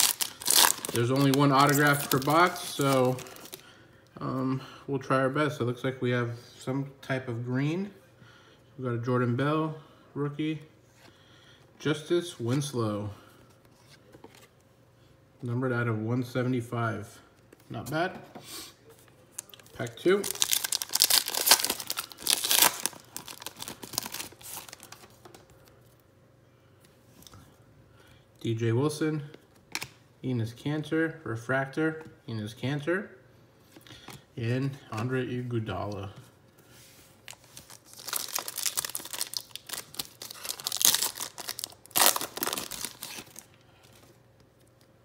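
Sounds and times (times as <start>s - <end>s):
foil wrapper tearing and crinkling: 0.0s - 3.6s, 20.2s - 25.0s, 37.6s - 43.5s.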